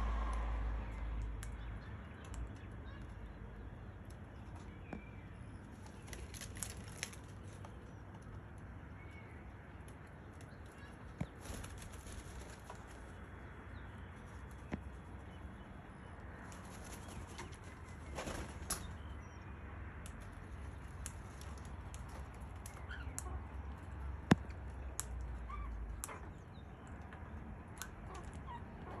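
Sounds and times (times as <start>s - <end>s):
low steady rumble: 0.0s - 4.5s
bird wings flapping: 5.9s - 7.5s, 11.2s - 13.1s, 16.4s - 19.0s
small ticks: 20.0s - 26.2s.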